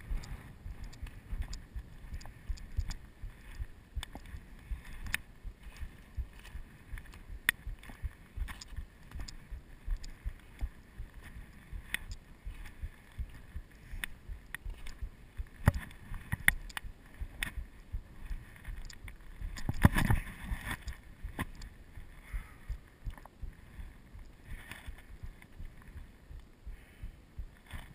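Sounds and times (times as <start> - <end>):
footsteps on rocky ground: 0.0 - 22.1
wind rumbling on microphone: 0.0 - 27.9.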